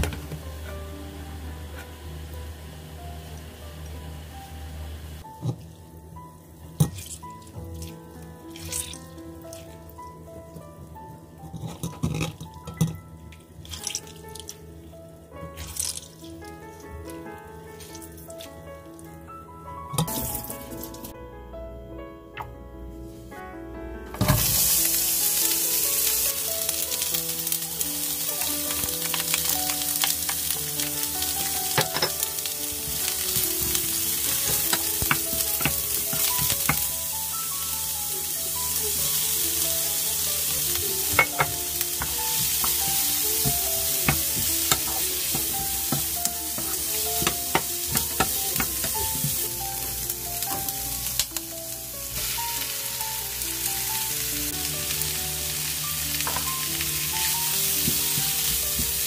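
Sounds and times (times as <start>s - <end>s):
vegetables sizzling in hot oil: 0.0s - 6.0s, 20.1s - 21.1s, 24.2s - 59.0s
wooden spatula scraping a pan: 32.8s - 36.9s, 40.4s - 50.7s, 56.0s - 59.0s.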